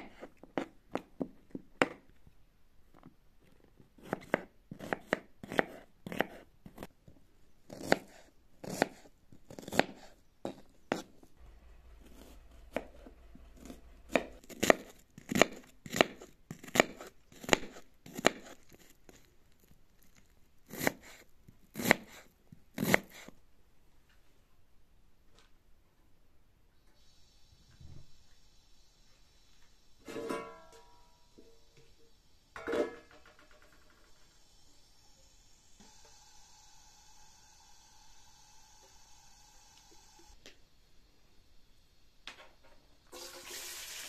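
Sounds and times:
knife chopping on cutting board: 4.0 - 6.9, 7.7 - 11.1, 13.6 - 18.7, 21.8 - 22.2.

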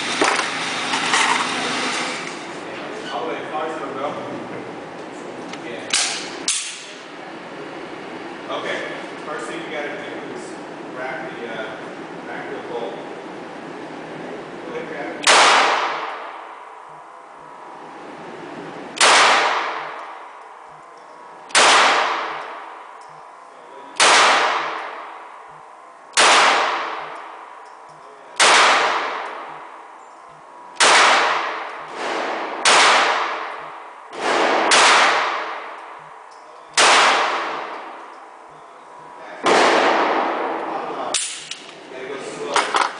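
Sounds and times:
pistol shots echoing: 15.2 - 16.4, 19.0 - 20.2, 21.5 - 22.8, 24.0 - 25.2, 26.2 - 27.4, 28.4 - 29.6, 30.8 - 36.0, 36.8 - 38.0, 39.4 - 40.6.

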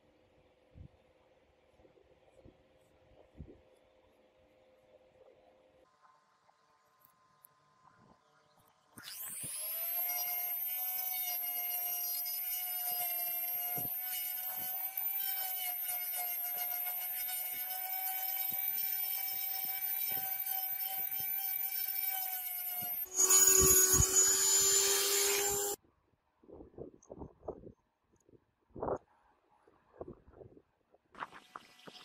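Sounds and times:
cordless drill sanding wood: 9.0 - 25.8.

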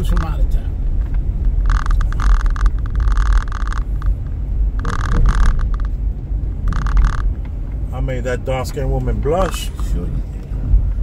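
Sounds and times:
car road noise rumble: 0.0 - 11.0
buzzing rattle: 1.0 - 7.4.

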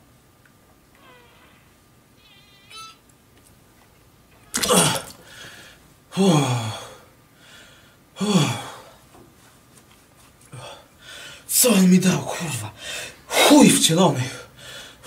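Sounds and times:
man groaning: 4.6 - 5.1, 6.2 - 6.9.

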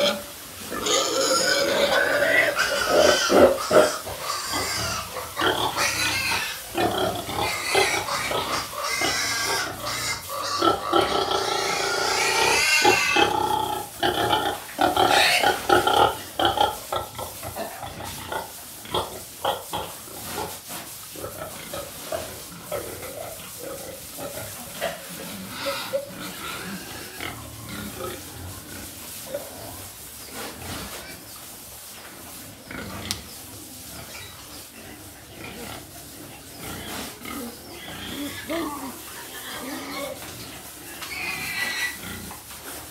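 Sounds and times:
pig squealing: 0.0 - 16.6, 25.4 - 27.8, 36.6 - 40.2, 41.0 - 42.3
pigs grunting and oinking: 0.0 - 31.3, 32.6 - 42.9.

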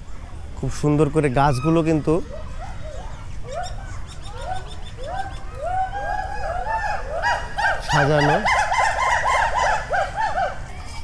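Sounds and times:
animals whooping loudly: 1.5 - 10.8.

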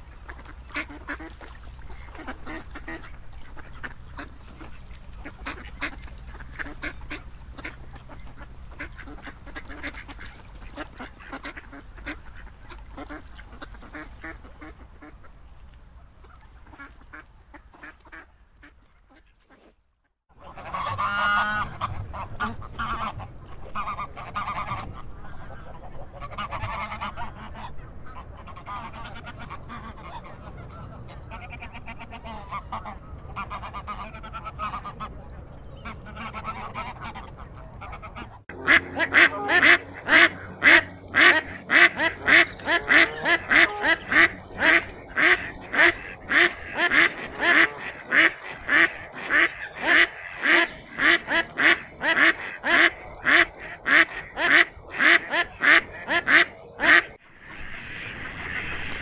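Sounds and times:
waterfowl flock calling: 0.0 - 19.7, 20.4 - 35.2, 35.8 - 59.0
duck quacking loudly: 37.8 - 57.2.

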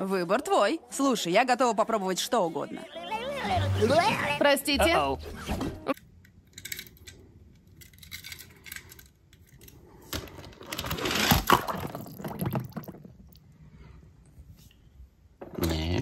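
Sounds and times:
plastic toy cars clattering: 5.9 - 13.3.

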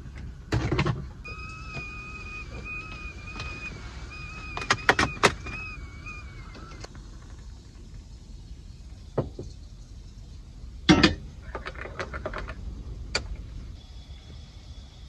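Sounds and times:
low steady rumble: 0.0 - 15.0
loud clunk: 10.9 - 11.3.

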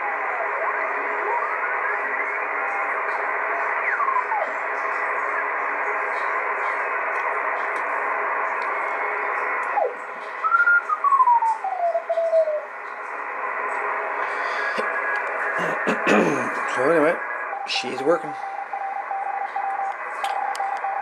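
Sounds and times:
radio static and signals: 0.0 - 21.0
whistling tone gliding down: 9.7 - 12.7.

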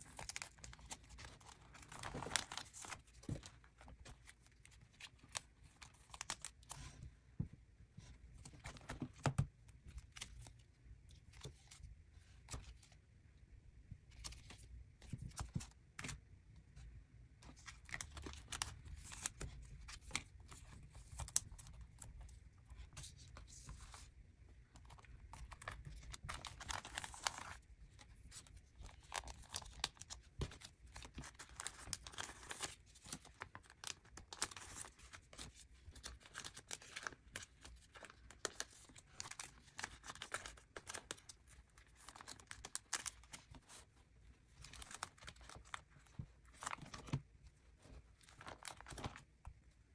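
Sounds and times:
plastic crinkling and rustling: 0.0 - 6.9.

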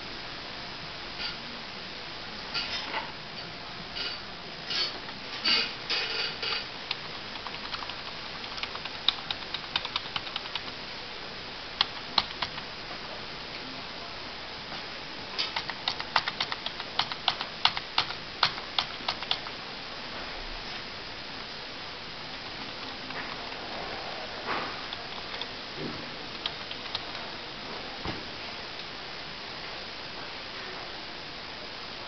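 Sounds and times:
keyboard keys clicking: 6.9 - 10.7, 11.8 - 12.7, 15.4 - 19.5, 24.9 - 25.5, 26.3 - 27.2.

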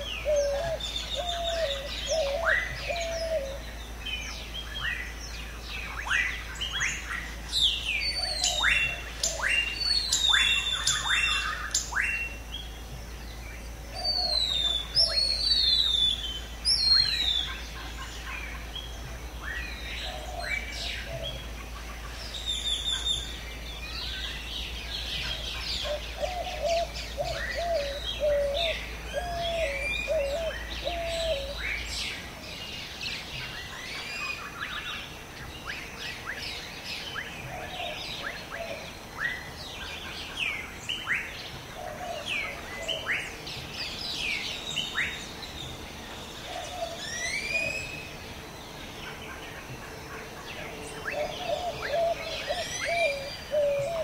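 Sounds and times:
birds chirping in chorus: 0.0 - 54.0
low bird call: 13.8 - 31.9.

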